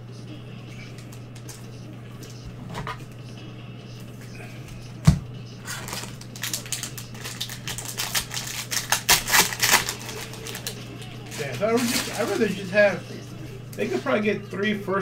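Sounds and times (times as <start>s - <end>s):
steady low hum: 0.0s - 15.0s
wrapper crinkling and tearing: 5.6s - 12.6s.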